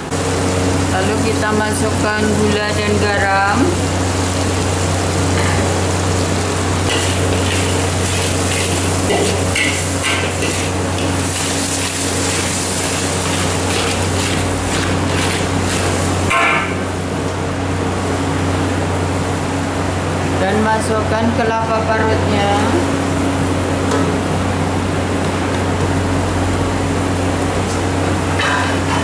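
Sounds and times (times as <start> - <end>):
spice paste sizzling in a wok: 3.8 - 16.3
metal spatula scraping a wok: 6.9 - 15.9.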